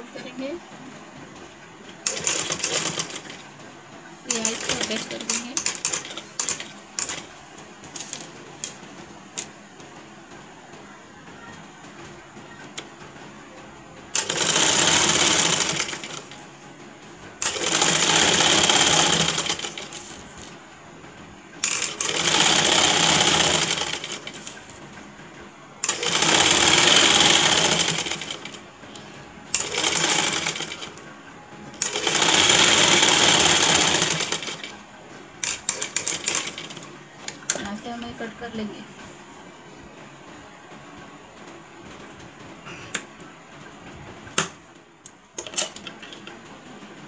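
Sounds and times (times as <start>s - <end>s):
sewing machine stitching: 2.0s - 3.6s, 4.2s - 9.5s, 14.1s - 16.4s, 17.4s - 20.5s, 21.6s - 25.1s, 25.8s - 28.6s, 29.5s - 31.0s, 31.7s - 34.8s, 35.4s - 38.3s.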